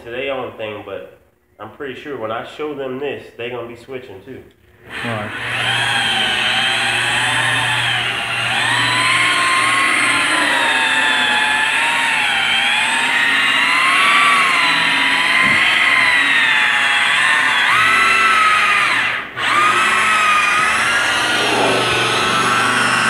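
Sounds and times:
rotary polisher motor whine: 4.8 - 23.0.

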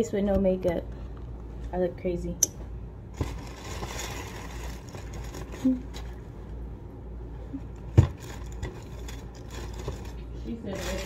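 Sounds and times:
tissue paper rustling: 3.2 - 6.2, 8.1 - 11.0.

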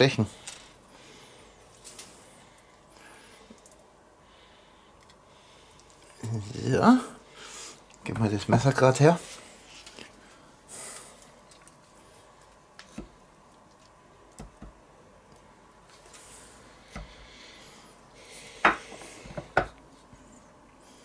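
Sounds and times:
soft squishy food handling: 9.2 - 14.4.

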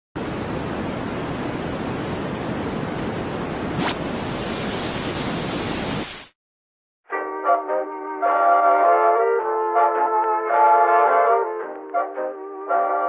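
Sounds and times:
tv static hiss: 0.2 - 6.4.

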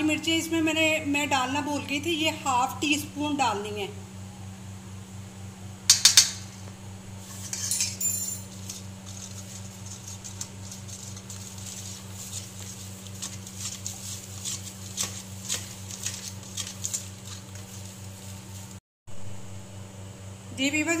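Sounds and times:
spoon stirring thick marinade: 8.5 - 18.8
low hum: 15.7 - 20.6.

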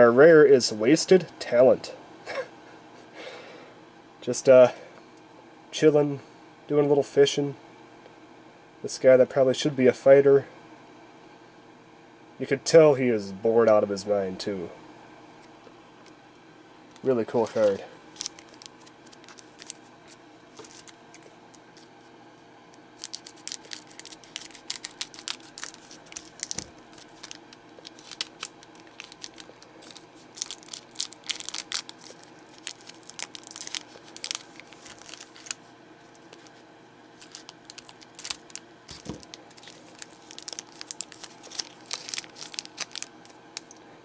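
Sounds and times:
wrapper tearing and crinkling: 17.4 - 19.8, 23.0 - 35.6, 37.2 - 43.7.

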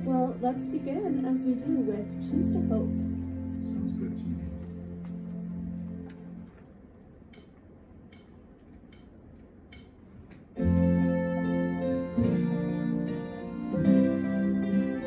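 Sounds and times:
keyboard chords: 0.0 - 6.8, 10.6 - 15.0.

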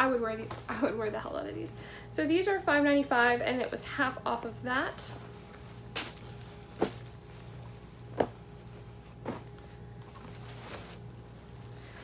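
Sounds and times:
faint steady hum: 0.0 - 12.0
clothing rustling and knocking: 5.5 - 11.2.

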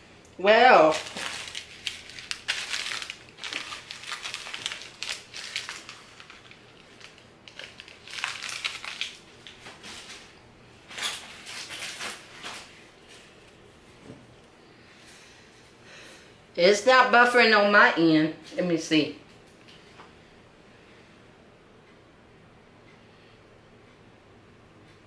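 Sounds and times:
plastic bag crinkling and rustling: 0.6 - 10.3, 10.9 - 13.4.

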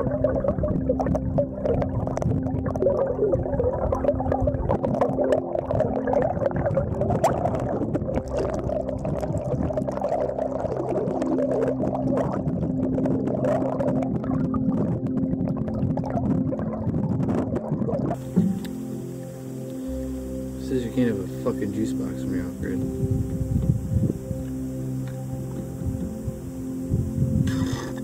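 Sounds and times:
underwater churning gurgling water: 0.0 - 19.6
small ticks and bubbles: 0.0 - 28.0
steady low hum: 0.0 - 28.0.

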